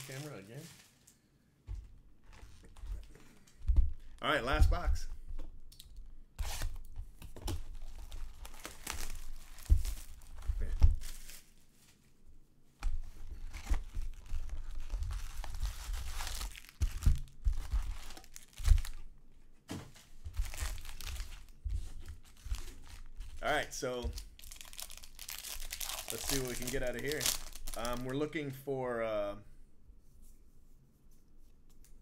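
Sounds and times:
foil packs crinkling: 0.0s - 1.1s, 7.7s - 11.8s, 13.4s - 19.0s, 20.3s - 28.3s.

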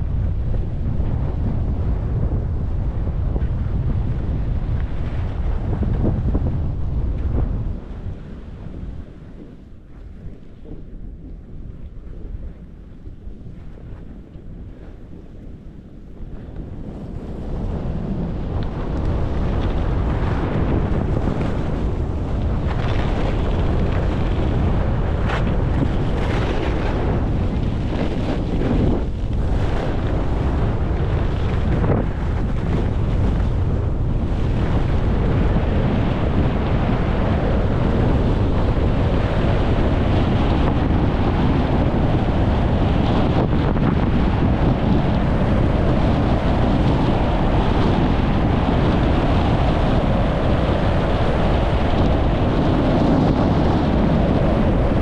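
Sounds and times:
wind buffeting microphone: 0.0s - 55.0s
skis scraping over snow: 18.8s - 55.0s.

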